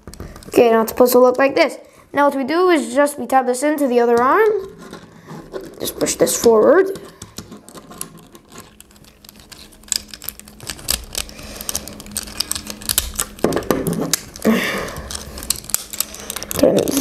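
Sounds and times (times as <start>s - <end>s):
plastic toy clicking and rattling: 4.1s - 17.0s.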